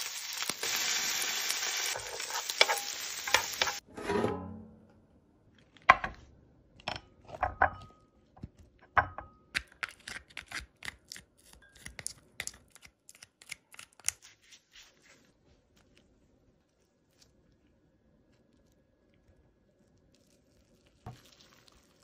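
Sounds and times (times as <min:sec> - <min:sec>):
crab shell cracking and tearing: 0:09.6 - 0:14.2.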